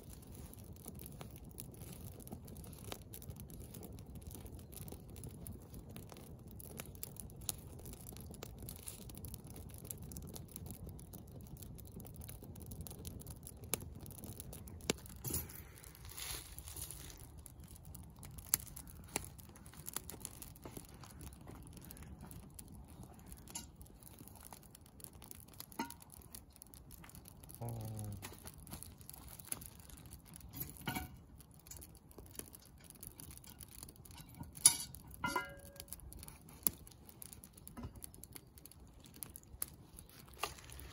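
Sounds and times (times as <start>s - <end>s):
burning sticks popping: 0.0s - 40.9s
campfire crackling: 0.0s - 40.9s
metal pot clanking on grate: 25.8s - 26.1s, 30.5s - 31.2s, 34.1s - 35.9s.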